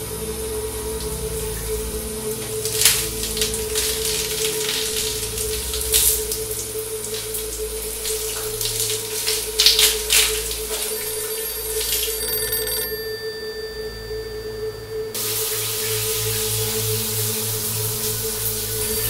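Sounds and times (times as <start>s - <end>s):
shower water splashing: 0.0s - 13.2s, 15.1s - 19.0s
steady tone: 10.5s - 19.0s
telephone ringing: 10.9s - 15.2s.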